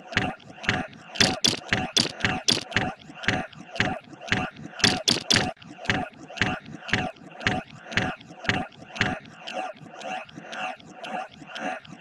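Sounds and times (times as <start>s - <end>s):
rapid ratcheting clicks: 1.2s - 2.7s, 4.8s - 5.6s.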